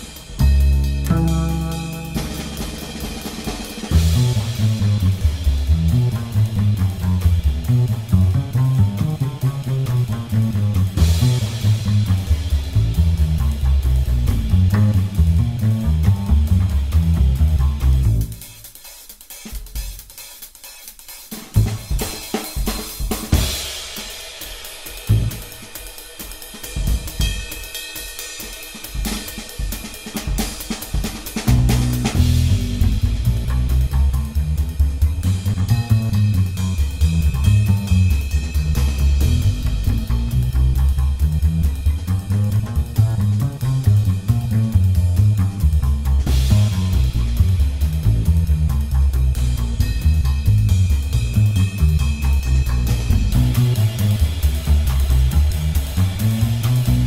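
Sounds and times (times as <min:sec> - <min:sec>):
heavy low drum hits: 0:00.0 - 0:18.4, 0:31.4 - 0:57.0
cymbals and hi-hat: 0:00.0 - 0:57.0
rock music with bass and guitar: 0:00.5 - 0:02.9, 0:31.6 - 0:57.0.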